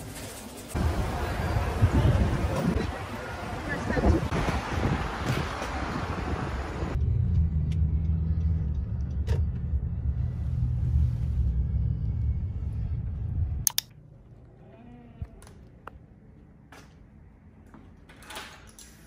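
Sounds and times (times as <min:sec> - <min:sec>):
wind noise on microphone: 0:03.8 - 0:07.0
road rumble inside car: 0:04.3 - 0:13.6
sharp clicks: 0:13.6 - 0:14.0.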